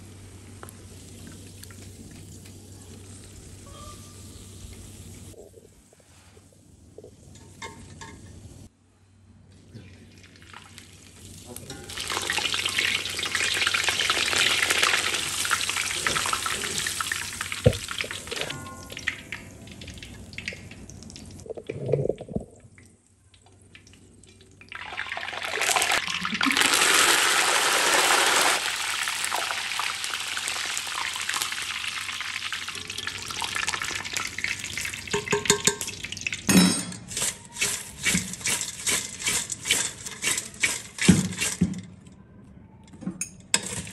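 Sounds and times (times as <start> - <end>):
crackling sizzle of deep-frying: 0.0 - 5.4, 10.0 - 21.5, 23.0 - 36.5.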